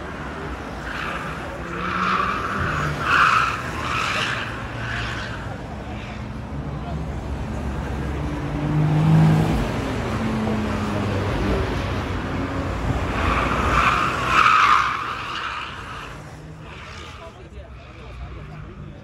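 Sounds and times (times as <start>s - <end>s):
tyres squealing: 0.6s - 6.2s, 13.1s - 17.4s.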